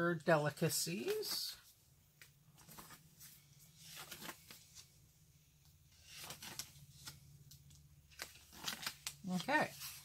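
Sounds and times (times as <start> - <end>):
paper pages rustling: 2.6 - 5.0, 5.9 - 10.0.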